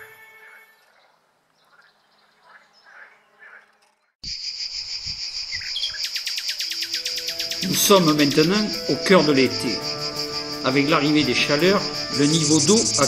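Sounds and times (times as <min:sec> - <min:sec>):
cicadas buzzing: 0:02.5 - 0:13.0
rapid pulsing insect song: 0:04.2 - 0:13.0.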